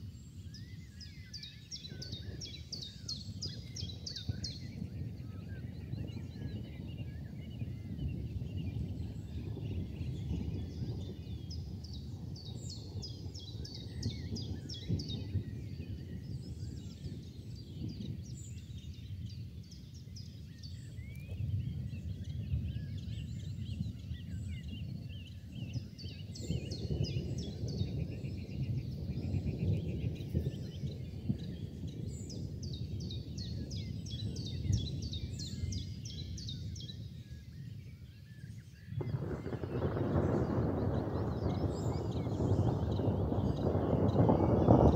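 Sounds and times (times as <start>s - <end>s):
small birds chirping: 0.0s - 44.9s.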